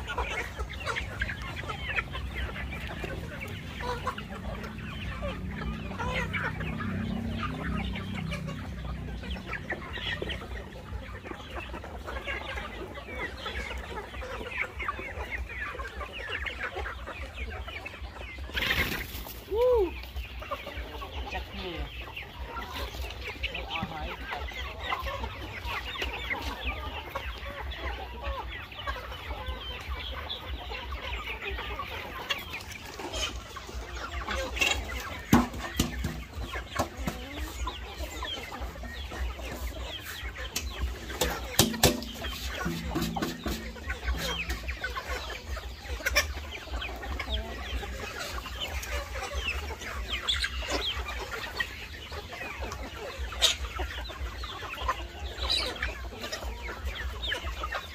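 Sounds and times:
chickens clucking: 0.0 - 57.9.

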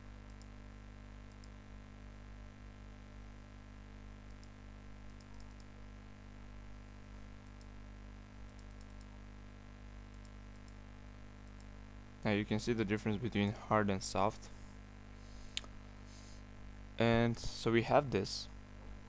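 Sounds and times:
electrical hum and hiss: 0.0 - 19.0
faint computer mouse clicks: 4.3 - 5.7, 8.5 - 9.1.

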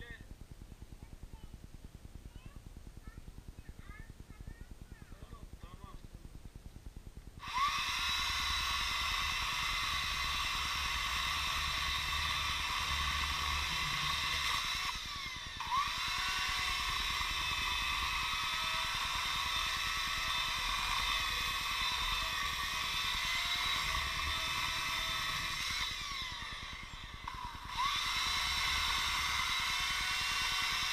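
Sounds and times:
chainsaw cutting dry wood: 7.4 - 30.9.

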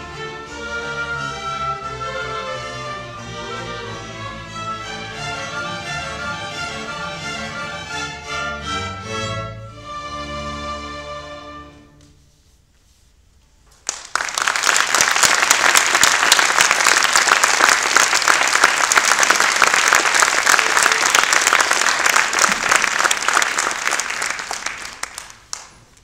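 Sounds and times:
audience clapping: 13.8 - 26.0.

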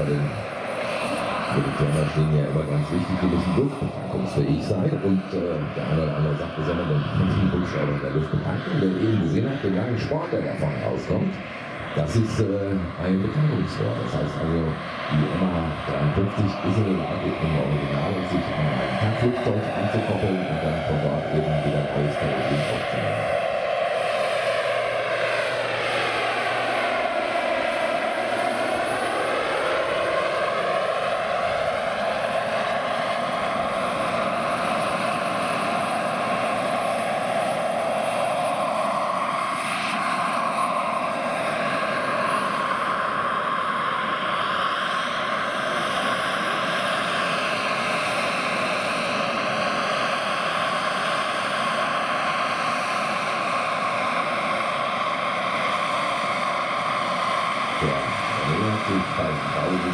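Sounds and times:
helicopter rotor noise: 0.0 - 59.9
turbine high whine: 0.0 - 59.9.

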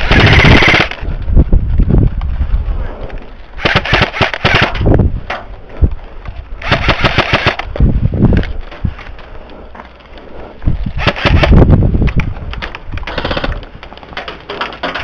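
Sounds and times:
airsoft rifle full-auto bursts: 0.0 - 1.0, 3.6 - 4.8, 6.6 - 7.7, 11.0 - 11.6.

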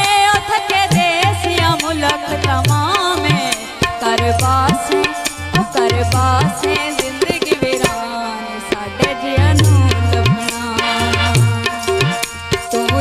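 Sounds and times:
wavering melody line: 9.4 - 10.4
deep bass drum strokes: 9.4 - 10.5
tabla strokes: 9.4 - 11.5.

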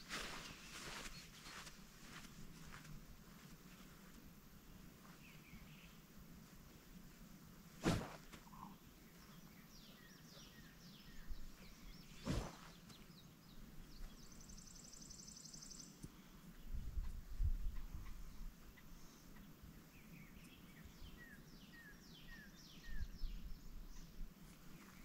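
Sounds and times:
birds chirping: 0.2 - 2.2, 8.1 - 16.8
golf club swishes: 7.8 - 8.4, 12.2 - 12.8.

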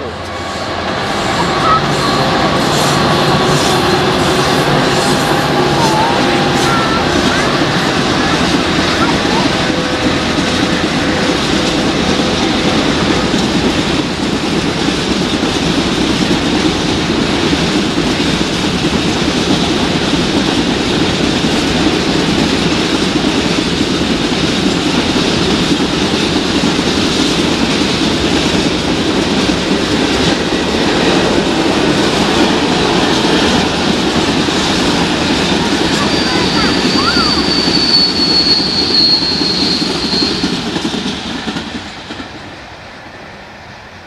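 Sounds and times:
train wheels rumbling on rails: 0.0 - 44.0
high wheel squeal: 35.5 - 40.8.

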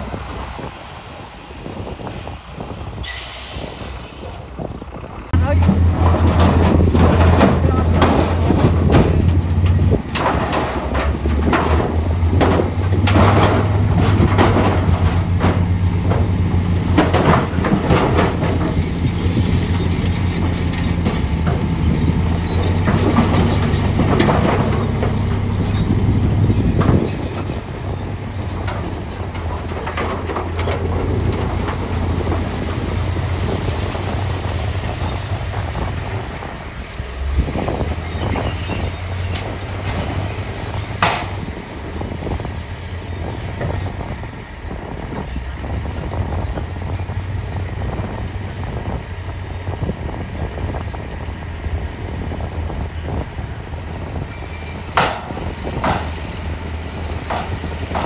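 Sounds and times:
diesel engine running: 0.0 - 58.0
rocks and soil tumbling: 5.2 - 44.0.

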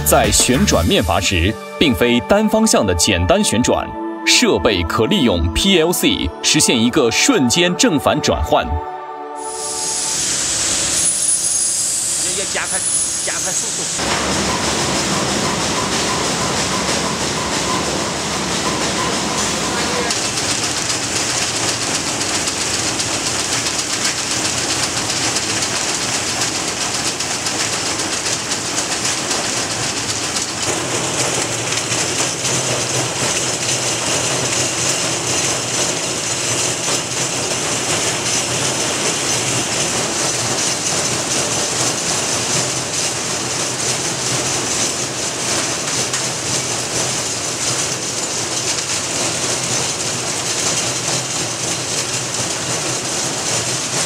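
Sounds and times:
small parts rattling on vibrating trays: 19.8 - 54.0.

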